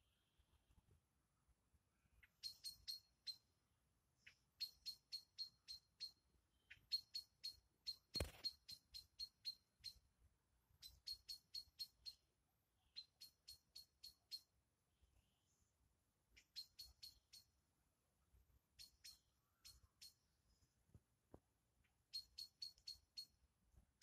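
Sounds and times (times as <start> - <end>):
animal high-pitched chirps: 2.2 - 3.4, 4.6 - 10.0, 10.8 - 12.2, 13.0 - 14.5, 16.4 - 17.5, 22.1 - 23.4
brief knock or rustle: 8.2 - 8.5.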